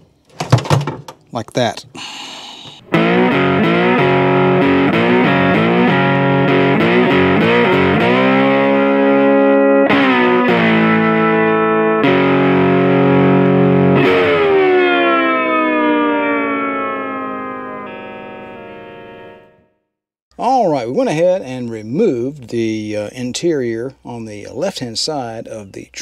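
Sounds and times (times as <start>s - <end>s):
distorted electric guitar chords: 2.7s - 19.8s.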